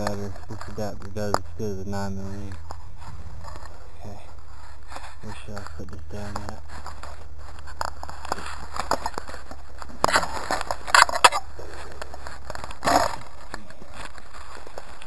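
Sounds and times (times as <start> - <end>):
steady low hum: 0.0 - 15.0
camera handling scraping: 6.3 - 15.0.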